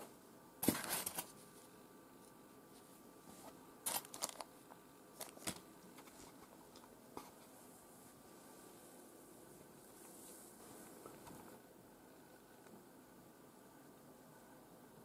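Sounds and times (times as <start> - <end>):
plastic bag crinkling: 3.8 - 4.5, 5.2 - 6.8.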